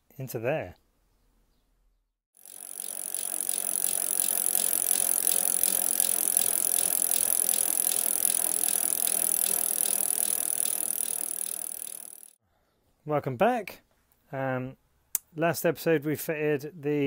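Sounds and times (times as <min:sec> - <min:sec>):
bicycle hub pawls ticking: 0:02.4 - 0:12.4.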